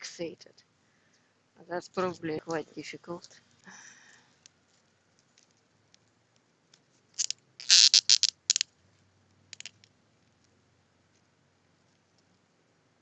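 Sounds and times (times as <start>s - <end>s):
plastic wrapping crinkling: 7.2s - 8.6s.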